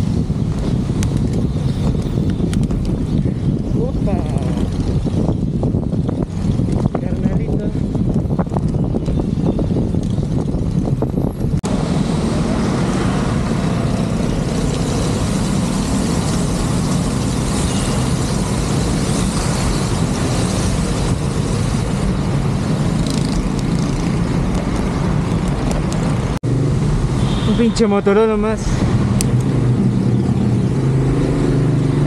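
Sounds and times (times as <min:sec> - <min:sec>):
wind on microphone: 0:00.0 - 0:27.6
motor traffic: 0:00.0 - 0:32.0
tyres on wet road: 0:11.6 - 0:32.0
rain: 0:11.7 - 0:22.9.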